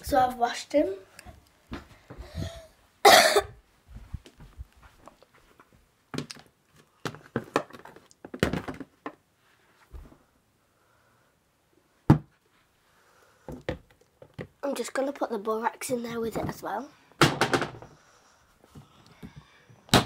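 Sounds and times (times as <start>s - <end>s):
knocks and thuds: 17.2s - 17.9s.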